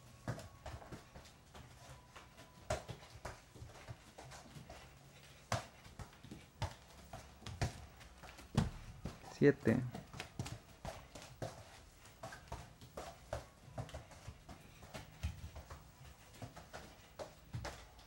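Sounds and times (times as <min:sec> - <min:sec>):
bare footsteps on tiles: 0:00.0 - 0:18.0
football thudding on tiles: 0:00.2 - 0:01.0, 0:05.5 - 0:09.2.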